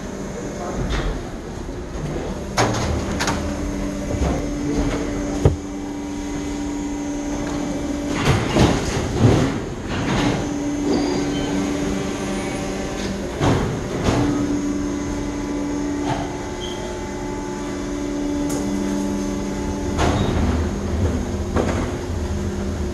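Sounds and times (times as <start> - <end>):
machine hum: 0.0 - 22.9.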